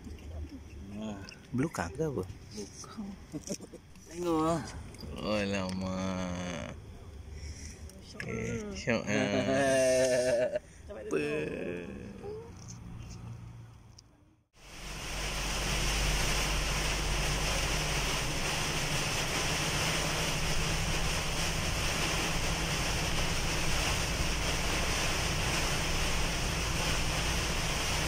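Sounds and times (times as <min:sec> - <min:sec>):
heavy rain on moving vehicle: 0:14.6 - 0:28.0.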